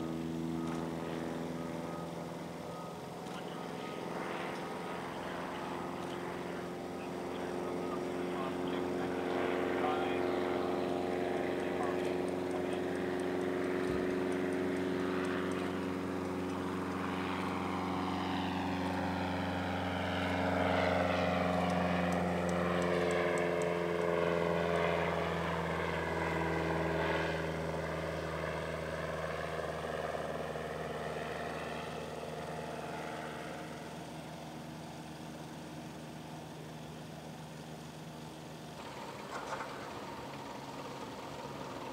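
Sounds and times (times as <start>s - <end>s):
propeller plane droning: 0.0s - 41.9s.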